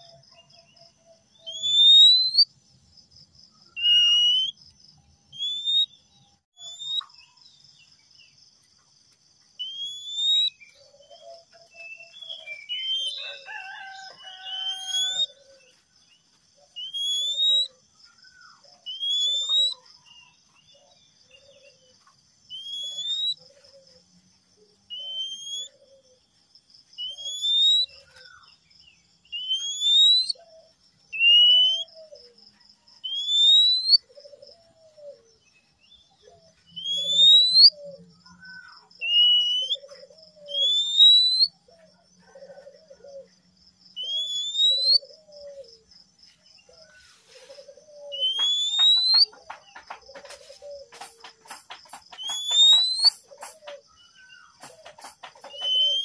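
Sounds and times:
bird whistling rising note: 0:03.8 - 0:04.5.

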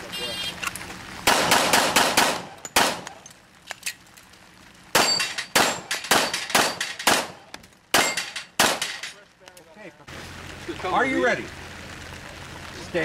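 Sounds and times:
pistol shots: 0:01.2 - 0:03.2, 0:04.9 - 0:09.0.

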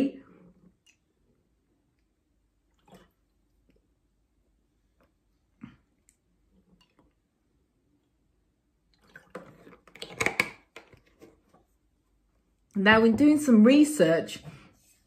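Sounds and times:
plastic bottle crinkling and clicking: 0:09.0 - 0:11.3.

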